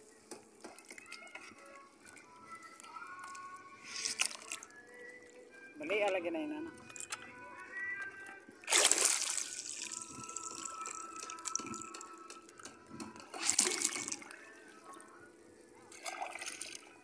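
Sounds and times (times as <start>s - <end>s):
water splashing and sloshing: 0.4s - 4.7s, 8.6s - 12.0s, 12.9s - 14.9s, 15.8s - 17.0s.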